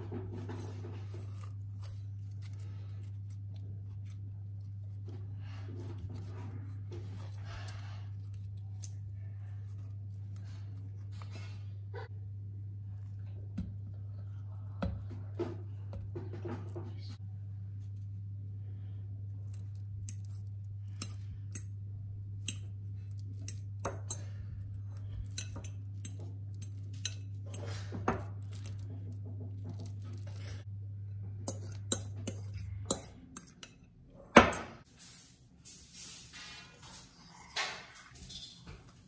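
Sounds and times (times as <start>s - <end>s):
steady low hum: 0.0s - 35.4s
fork scraping glass bowl: 31.5s - 33.8s.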